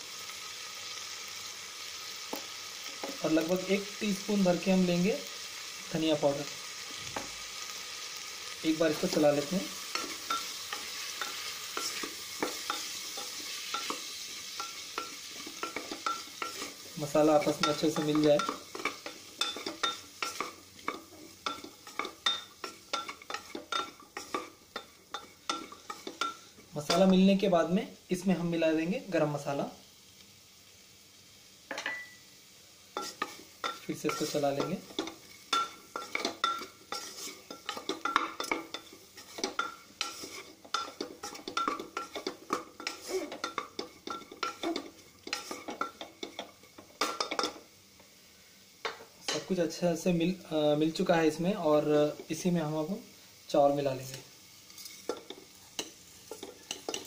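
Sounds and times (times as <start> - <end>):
frying sizzle: 0.0 - 57.0
spoon scraping a metal pot: 34.1 - 46.5.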